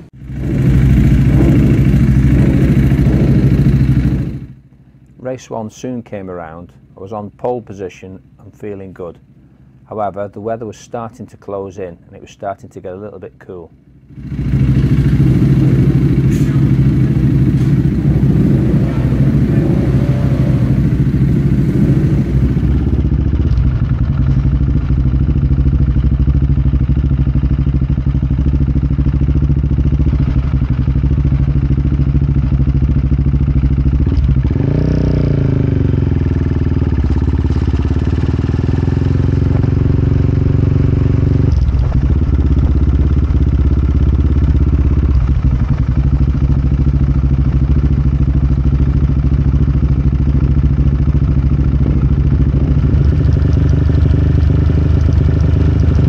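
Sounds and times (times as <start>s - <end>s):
engine revs rising and falling: 0.0s - 4.5s, 14.2s - 23.0s, 37.0s - 41.6s
motorcycle engine running: 0.0s - 5.2s, 8.2s - 12.3s, 13.1s - 56.0s.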